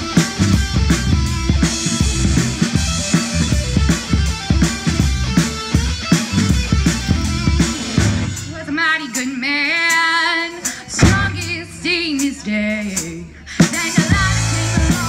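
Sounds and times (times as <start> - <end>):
drum hit: 0.0 - 8.5, 11.0 - 11.6
live rock band: 0.0 - 15.0.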